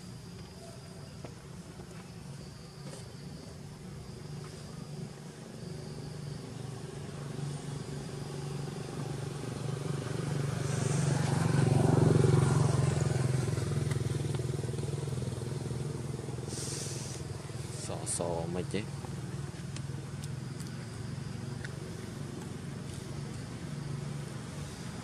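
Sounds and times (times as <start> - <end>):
vehicle engine passing by: 6.4 - 19.4.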